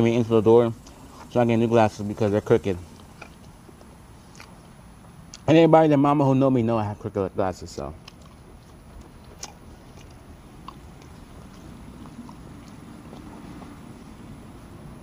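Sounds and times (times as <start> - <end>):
low outdoor background rumble: 0.0 - 15.0
person chewing: 2.9 - 4.7, 8.0 - 14.8
mouth clicks: 4.3 - 4.6, 8.0 - 14.0.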